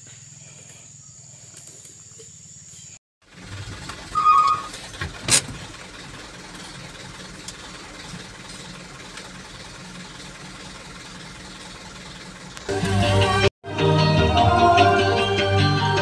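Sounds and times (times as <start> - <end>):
vehicle engine running: 0.0 - 13.5
short squeak: 4.1 - 5.0.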